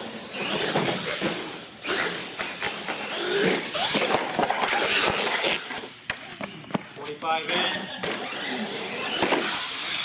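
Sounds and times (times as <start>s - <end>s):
toy truck motor whine: 1.8s - 4.2s, 8.1s - 10.0s.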